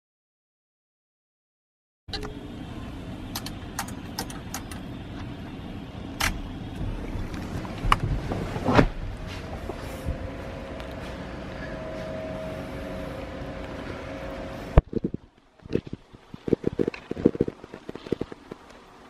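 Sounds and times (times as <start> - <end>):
truck engine idling: 2.1 - 15.0.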